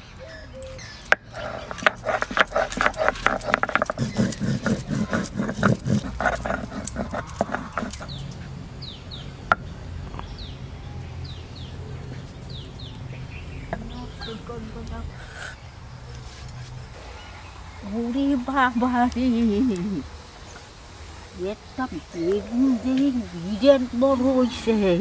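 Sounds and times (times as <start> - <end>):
small birds chirping: 0.0 - 25.0
stone roller crushing chillies: 1.0 - 8.3.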